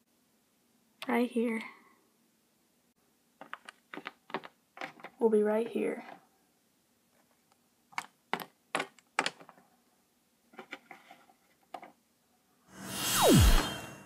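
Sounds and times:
loud swelling noise: 0:12.7 - 0:14.0.

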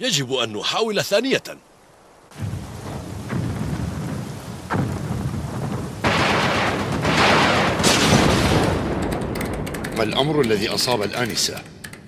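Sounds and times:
heavy rain falling: 0:00.1 - 0:11.6
loud rumbling crash: 0:02.4 - 0:09.7.

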